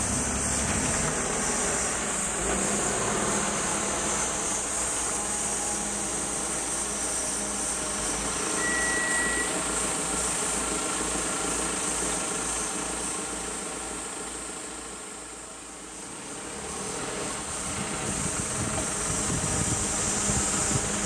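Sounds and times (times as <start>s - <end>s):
brake squeal: 0.0s - 13.5s
minibus engine running: 0.0s - 21.0s
steady high-pitched hiss: 0.0s - 21.0s.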